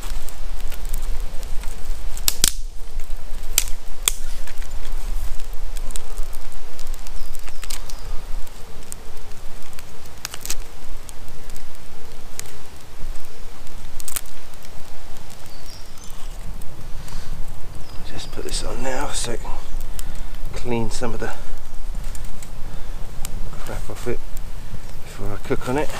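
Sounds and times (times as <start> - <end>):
campfire crackling and popping: 0.0 - 25.9.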